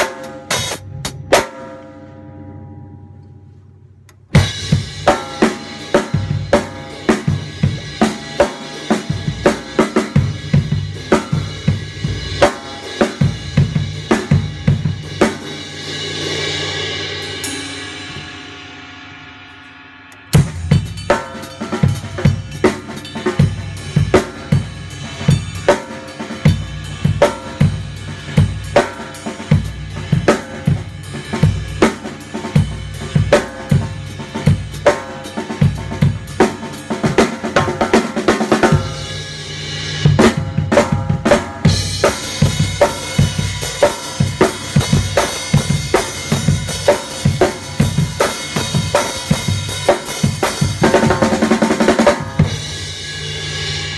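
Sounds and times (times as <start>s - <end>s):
bass drum: 4.3s - 15.5s, 20.3s - 53.2s.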